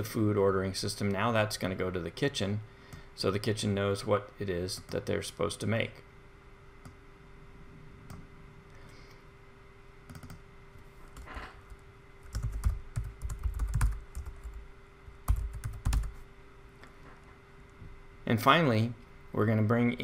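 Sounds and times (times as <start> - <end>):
faint steady hum: 0.0 - 20.0
computer keyboard typing: 10.1 - 10.4, 11.2 - 14.6, 15.2 - 16.2.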